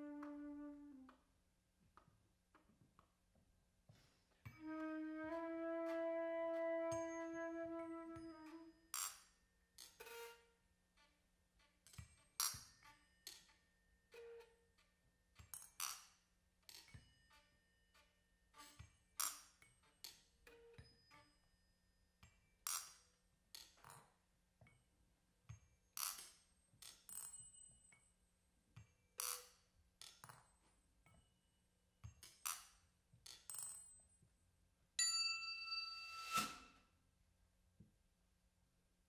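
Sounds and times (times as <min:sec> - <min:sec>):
small percussion clicks and clinks: 0:06.9 - 0:24.9, 0:25.5 - 0:34.4, 0:35.0 - 0:36.7.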